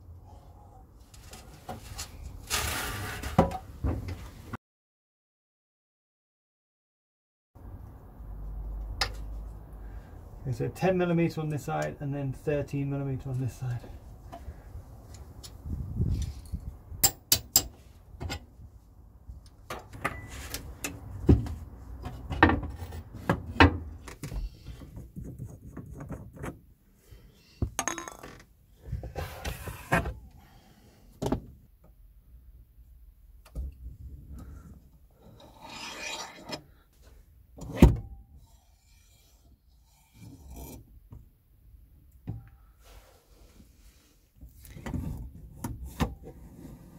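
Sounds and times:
rubbing scraping and knocks: 0:24.2 - 0:26.7.

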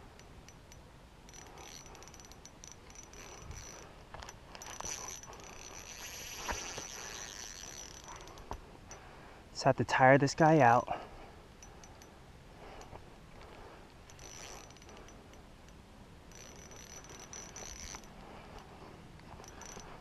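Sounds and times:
fishing reel ticking and whirring: 0:00.1 - 0:09.0, 0:11.6 - 0:12.1, 0:12.8 - 0:15.5, 0:16.3 - 0:20.0.

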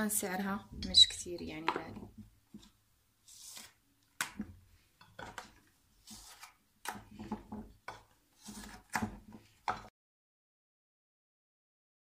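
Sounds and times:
silicone mould rubbing scrapes: 0:08.4 - 0:09.5.

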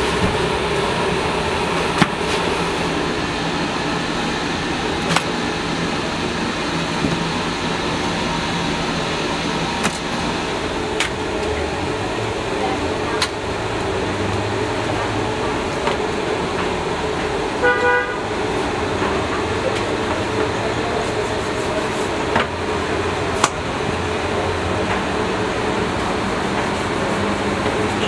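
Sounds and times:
steady background hum: 0:00.0 - 0:28.0
horn toot: 0:17.6 - 0:18.3.

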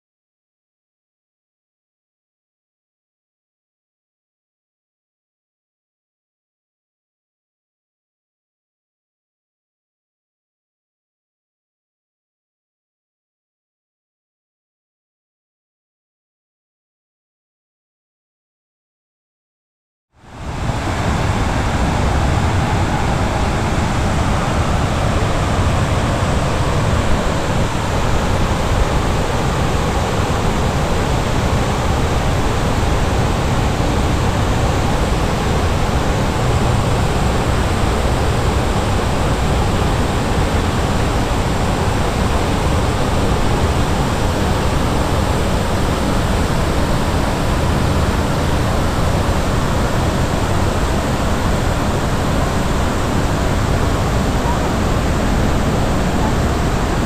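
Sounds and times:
water cascading down walls: 0:20.3 - 0:57.0.

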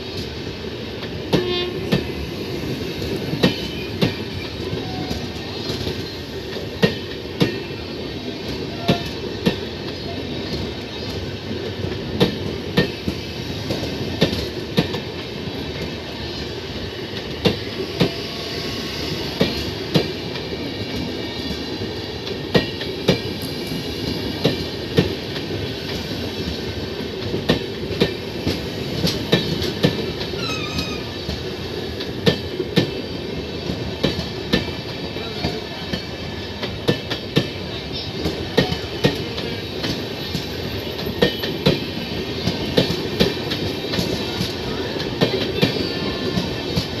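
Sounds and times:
train coaches rumbling: 0:00.0 - 0:47.0.

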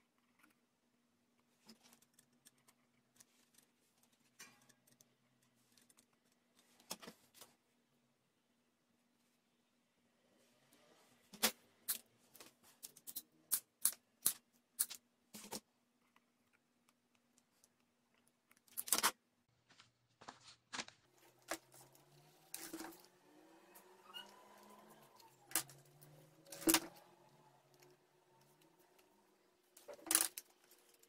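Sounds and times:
toy clattering: 0:29.8 - 0:31.0.

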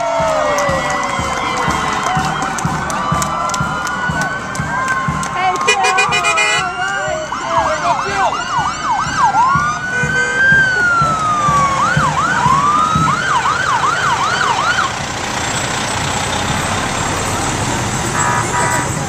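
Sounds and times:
siren yelp and wail: 0:00.0 - 0:15.0.

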